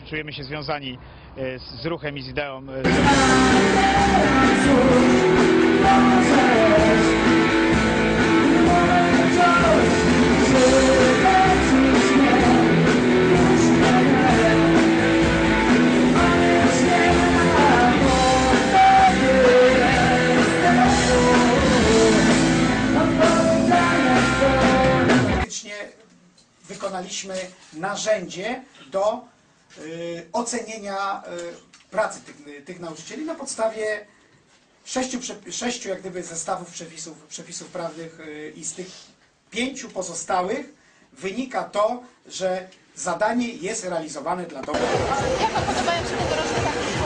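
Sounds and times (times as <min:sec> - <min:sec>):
person singing: 0:02.8 - 0:25.5
rock band playing loudly: 0:02.9 - 0:25.5, 0:44.8 - 0:47.0.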